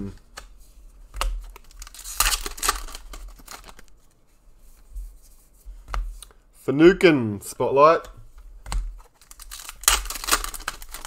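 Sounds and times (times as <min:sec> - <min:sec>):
trading cards rustling and slapping: 0:00.0 - 0:04.1, 0:08.2 - 0:11.0.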